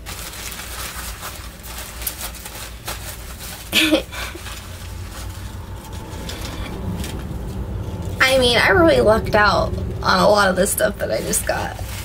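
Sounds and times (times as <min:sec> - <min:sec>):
packaging rustling: 0:00.0 - 0:08.1, 0:11.2 - 0:12.0.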